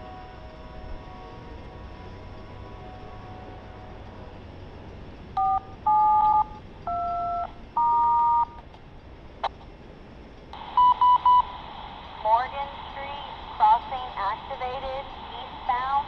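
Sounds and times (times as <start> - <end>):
quick beeps: 5.4 - 8.6, 10.8 - 11.5
touch-tone dialing beeps: 5.4 - 8.6, 10.8 - 11.5
radio hiss: 10.6 - 16.0.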